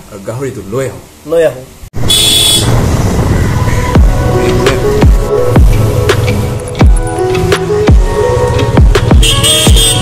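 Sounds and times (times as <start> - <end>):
electronic beat music: 3.7 - 10.0
deep kick drum: 4.0 - 4.2.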